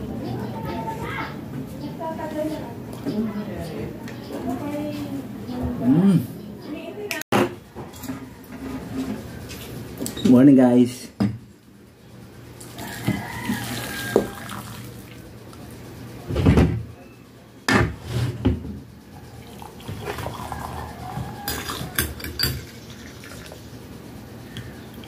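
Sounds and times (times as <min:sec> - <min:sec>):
water pouring from kettle: 0:13.6 - 0:15.2, 0:19.4 - 0:20.9.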